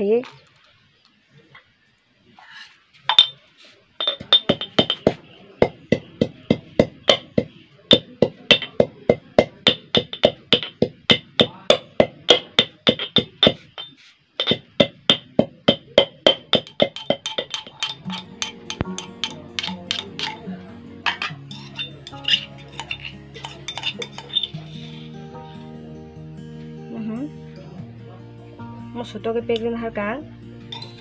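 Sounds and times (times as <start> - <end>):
metal pestle pounding in mortar: 3.1 - 3.4, 4.0 - 24.8.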